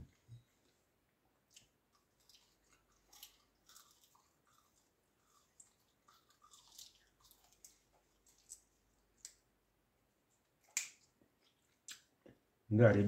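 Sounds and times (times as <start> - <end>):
person chewing snack: 1.4 - 9.4, 10.6 - 12.4.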